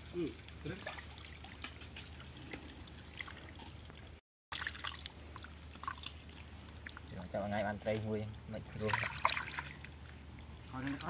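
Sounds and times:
muddy water splashing: 0:00.0 - 0:11.0.

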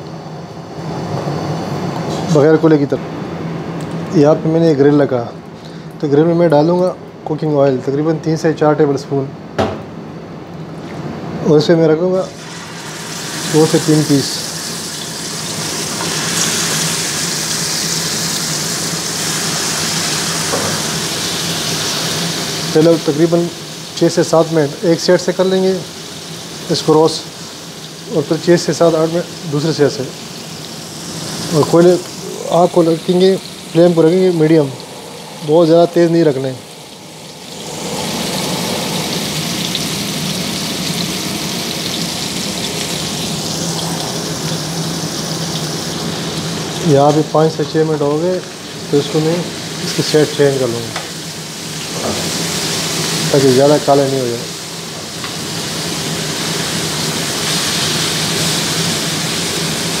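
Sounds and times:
chicken sizzling in hot oil: 0:12.1 - 1:00.0.

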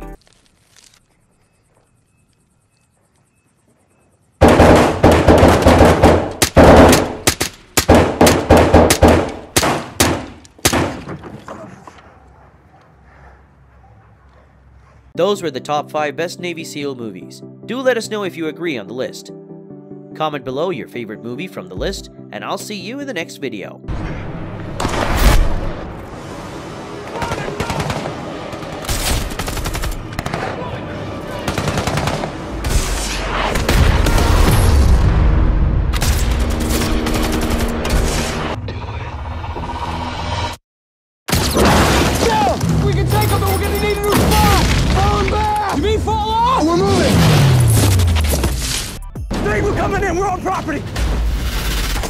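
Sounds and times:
film score music: 0:01.5 - 0:40.6, 0:42.2 - 0:52.0
gunfire: 0:04.4 - 0:11.2, 0:27.2 - 0:30.7, 0:31.3 - 0:34.8.

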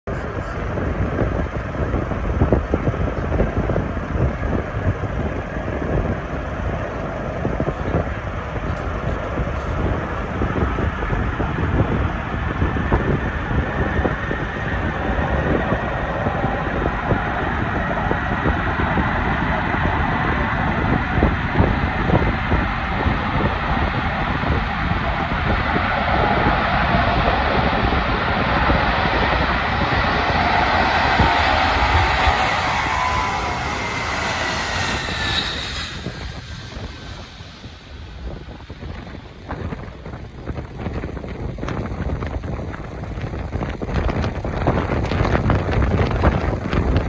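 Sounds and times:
wind buffeting microphone: 0:00.0 - 0:47.0
distant jet engine noise with whine: 0:00.1 - 0:47.0.

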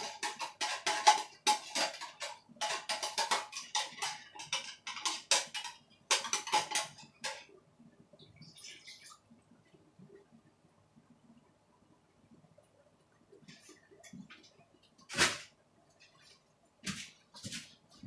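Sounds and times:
metal spoon scraping tin can: 0:00.0 - 0:07.4.

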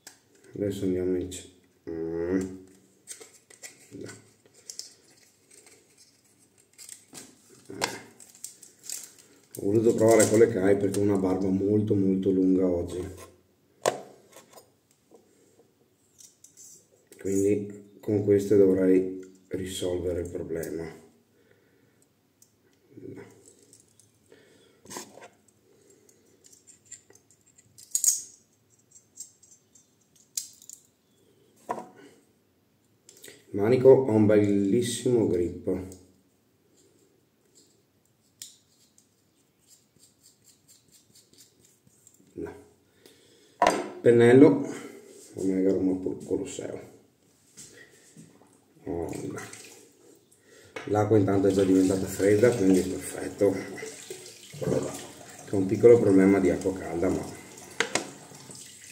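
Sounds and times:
metallic razor clicks and scrapes: 0:39.6 - 0:42.2.

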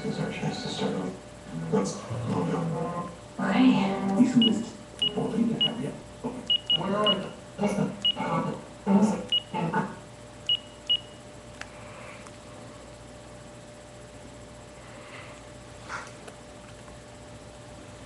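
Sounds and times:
phone keypad beeps: 0:09.3 - 0:09.5, 0:10.5 - 0:11.2.

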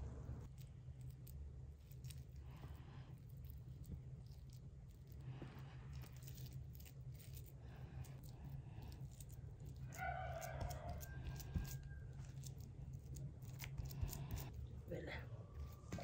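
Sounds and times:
steady low rumble: 0:00.0 - 0:09.9.

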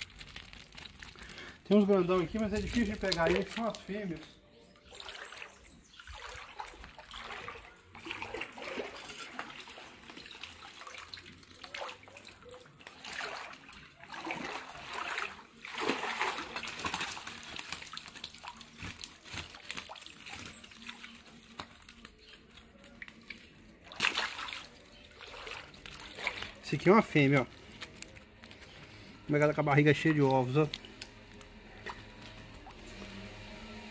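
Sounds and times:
water sloshing and splashing: 0:00.0 - 0:33.9
net lifted out with splash: 0:04.9 - 0:12.2, 0:12.8 - 0:21.9, 0:23.8 - 0:28.2.

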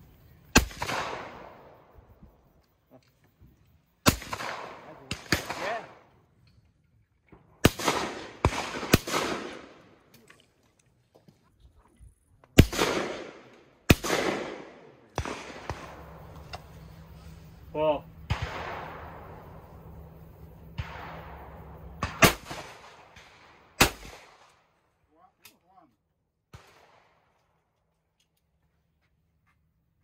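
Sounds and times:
shotgun shots echoing: 0:00.5 - 0:01.9, 0:04.0 - 0:06.1, 0:07.6 - 0:10.1, 0:12.6 - 0:17.1, 0:18.1 - 0:24.8.

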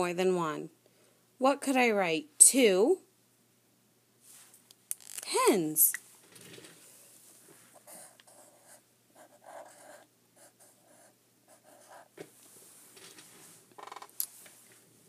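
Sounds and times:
marker writing on paper: 0:07.8 - 0:12.1.

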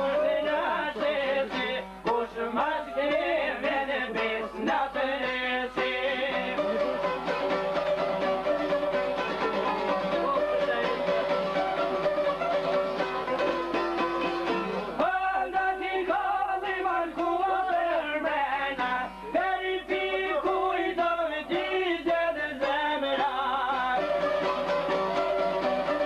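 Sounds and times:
man singing: 0:00.0 - 0:07.1, 0:09.9 - 0:11.4, 0:15.0 - 0:24.5
plucked long-necked lute: 0:00.0 - 0:15.2, 0:17.1 - 0:26.0.

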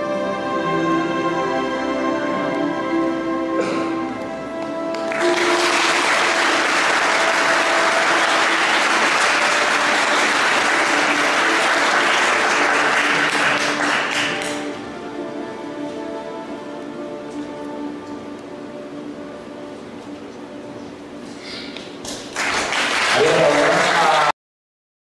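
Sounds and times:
slow background music: 0:00.0 - 0:24.0
audience applauding: 0:04.6 - 0:14.8, 0:22.0 - 0:24.3.

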